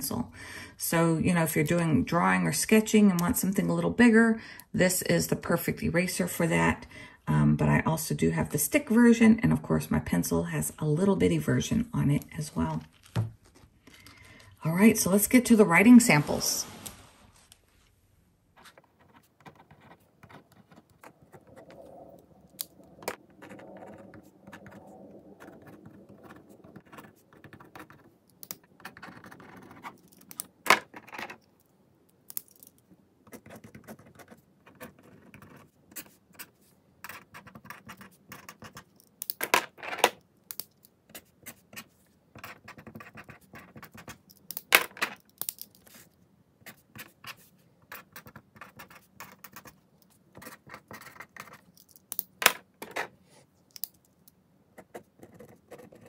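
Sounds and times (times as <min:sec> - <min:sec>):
pens scratching on paper: 0:18.6 - 0:31.1, 0:33.3 - 0:39.1, 0:41.1 - 0:44.4, 0:45.8 - 0:51.8, 0:54.8 - 0:56.0.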